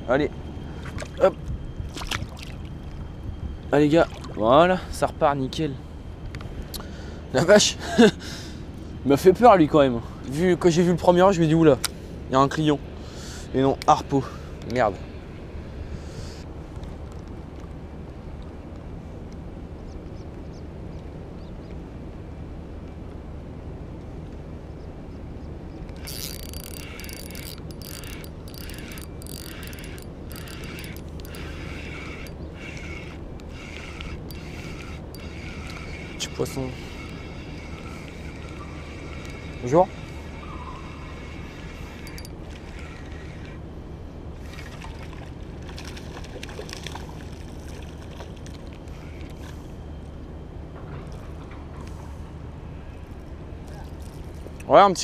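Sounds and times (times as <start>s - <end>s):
fishing reel whirring: 25.9s - 43.6s.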